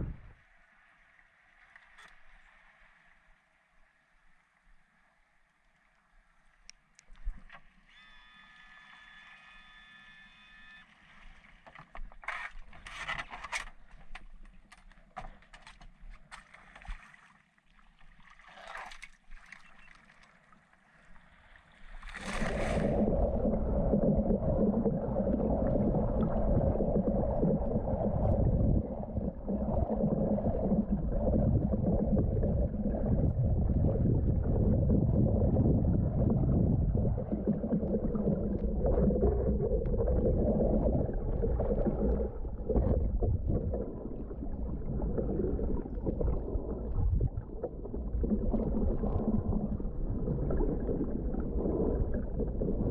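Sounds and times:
muffled underwater rush: 0.0 - 1.6, 21.0 - 52.9
water splashes and knocks: 11.3 - 20.4.

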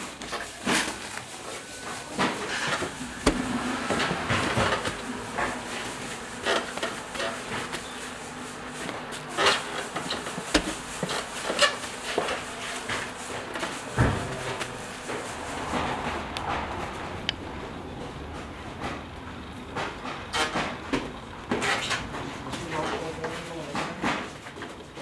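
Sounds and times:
dull thud: 3.1 - 4.7, 10.5 - 11.0
knocks and clicks of handling: 9.9 - 11.7.

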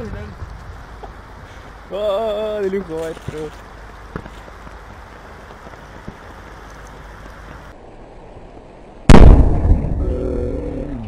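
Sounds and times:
loud explosive blast: 9.1 - 10.2.

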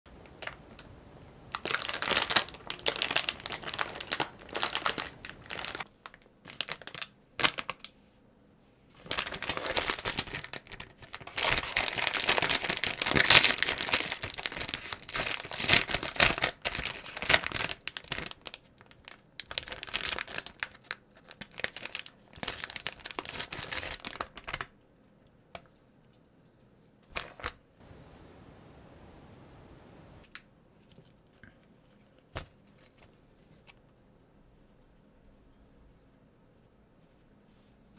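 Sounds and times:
plastic wrapper crinkling: 1.5 - 7.9, 9.0 - 24.7.

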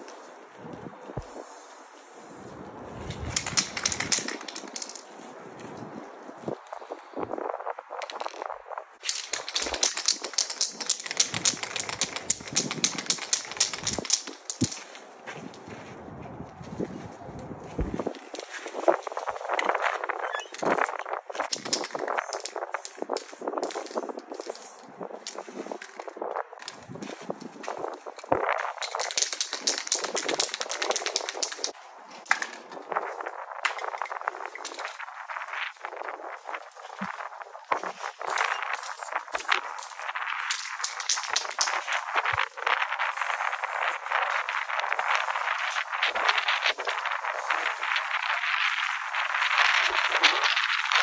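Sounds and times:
spray can rattling: 3.1 - 5.2, 8.0 - 15.0, 20.5 - 26.9, 27.8 - 32.6, 37.2 - 51.0.

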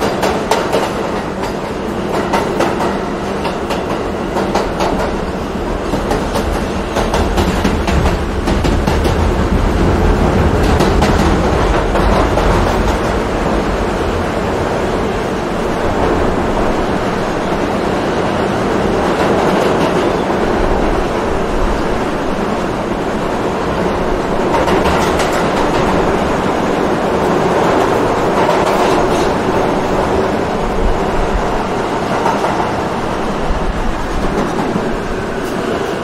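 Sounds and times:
quick rail clatter: 0.0 - 14.3, 24.4 - 31.0
subway train rumbling: 0.0 - 36.0.

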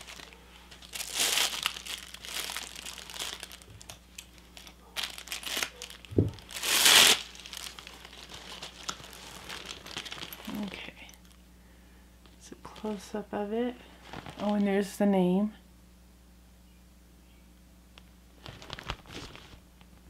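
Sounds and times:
crinkly packaging rustling: 0.0 - 11.4, 12.2 - 13.1, 13.9 - 14.9, 18.4 - 19.7.

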